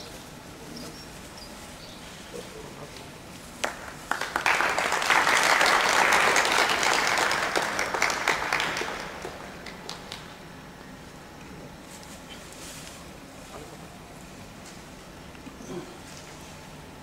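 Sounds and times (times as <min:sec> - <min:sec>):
audience applauding: 0:03.6 - 0:10.4.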